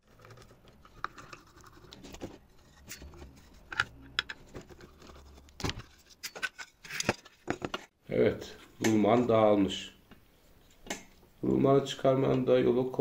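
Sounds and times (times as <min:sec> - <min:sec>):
light metal scraping: 0:00.0 - 0:07.9.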